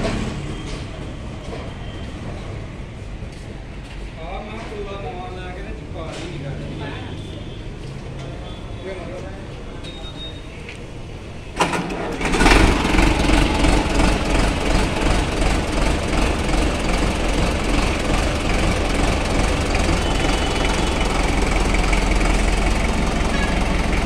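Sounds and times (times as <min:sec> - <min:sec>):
tractor diesel engine starting: 0:11.2 - 0:24.0.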